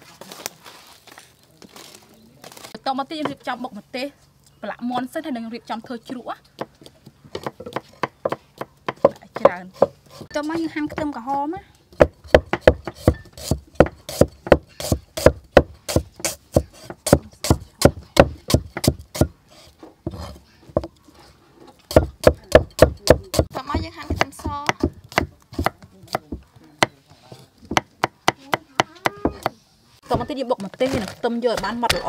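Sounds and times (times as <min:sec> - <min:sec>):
cleaver chopping on wooden block: 0:06.0 - 0:11.2, 0:11.9 - 0:19.4, 0:21.9 - 0:27.0, 0:27.6 - 0:29.6.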